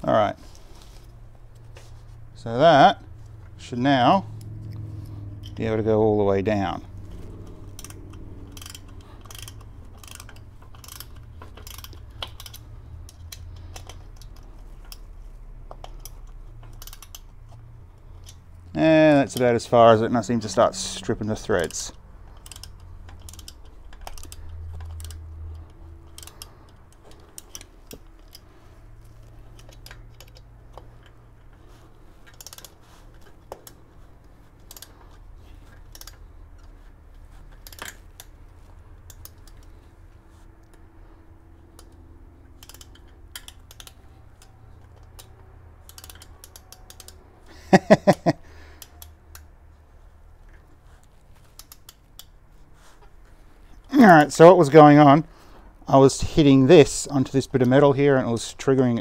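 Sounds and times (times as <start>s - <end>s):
screwdriver clicks on metal: 42.6s - 47.2s.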